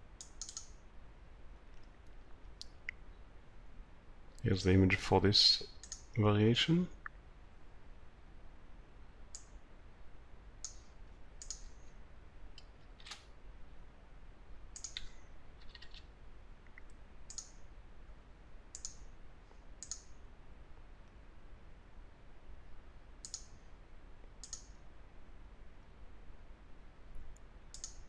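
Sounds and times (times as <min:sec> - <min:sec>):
faint low hum: 0:00.0 - 0:28.0
mouse and keyboard clicks: 0:00.2 - 0:00.8, 0:10.6 - 0:11.8, 0:14.8 - 0:16.1, 0:16.7 - 0:17.6, 0:18.7 - 0:19.0, 0:19.8 - 0:20.1, 0:23.2 - 0:23.5, 0:24.4 - 0:24.8, 0:27.7 - 0:28.0.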